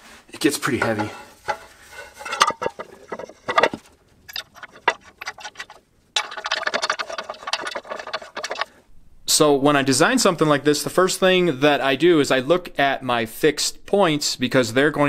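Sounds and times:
rapid clicking and rattling: 2.3s - 8.7s.

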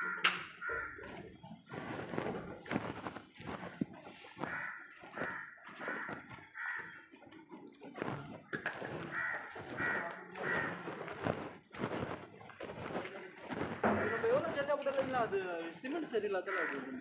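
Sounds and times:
crow cawing: 0.0s - 1.1s, 4.4s - 7.0s, 9.1s - 10.8s, 13.9s - 14.5s, 16.5s - 17.0s.

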